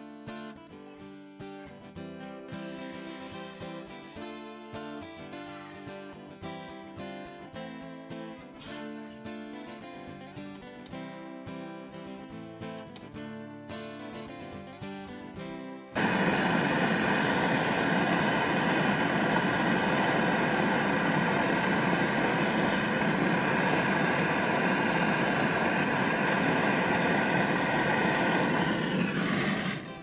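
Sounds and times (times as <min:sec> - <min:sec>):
gas torch roaring: 0:16.0 - 0:30.0.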